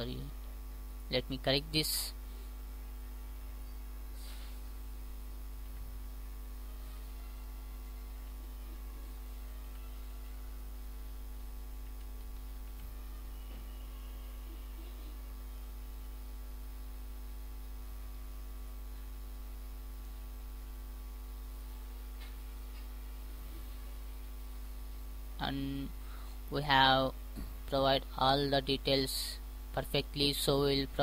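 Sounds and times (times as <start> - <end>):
electrical mains hum: 0.0 - 31.0.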